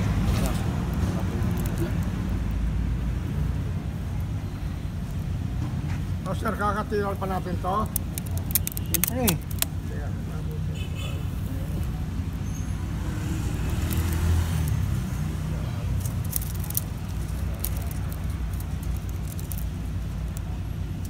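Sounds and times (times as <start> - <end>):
road traffic rumble: 0.0 - 21.0.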